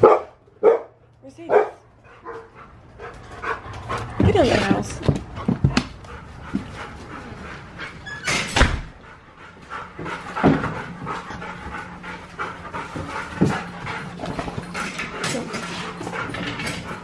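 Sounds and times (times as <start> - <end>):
dogs panting: 0.0 - 17.0.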